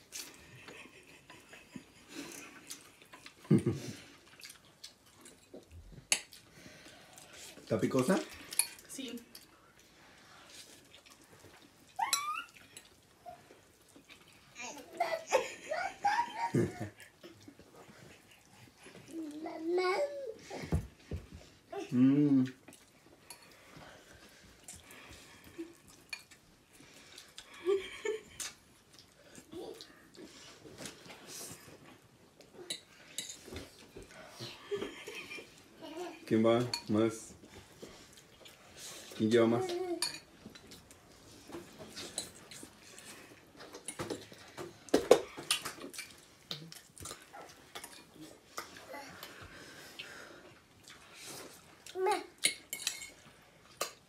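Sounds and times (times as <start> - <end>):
person humming mm: 21.8 - 22.6
forks clinking against bowls: 40.0 - 40.3, 52.4 - 53.2
slurping and chewing noodles: 45.4 - 52.0.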